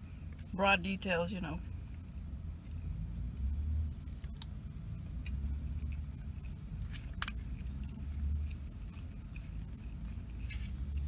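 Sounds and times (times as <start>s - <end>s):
chewing food: 3.8s - 11.0s.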